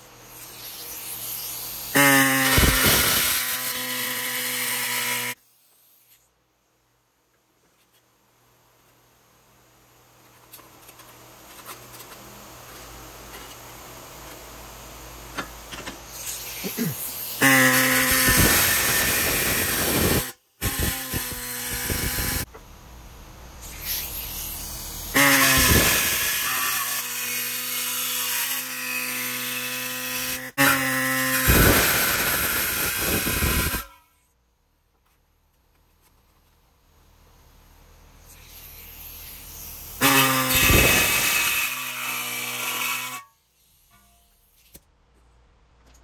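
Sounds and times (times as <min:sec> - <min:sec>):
power tool whining: 0:00.2 - 0:05.4, 0:15.4 - 0:22.6, 0:23.6 - 0:34.1, 0:38.2 - 0:43.3.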